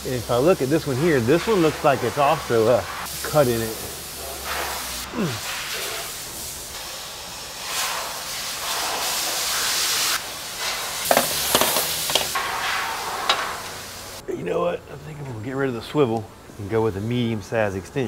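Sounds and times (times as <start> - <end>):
aerosol spray can hissing: 0.0 - 14.2.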